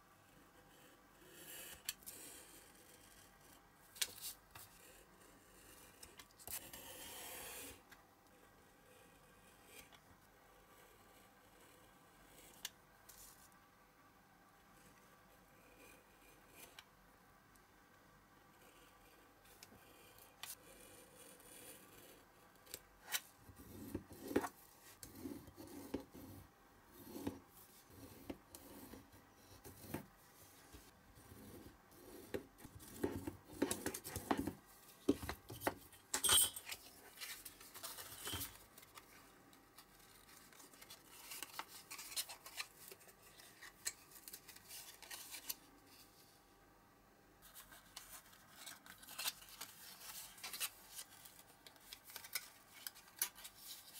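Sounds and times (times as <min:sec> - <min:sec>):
card rustling: 0:36.6 - 0:46.0, 0:47.4 - 0:53.9.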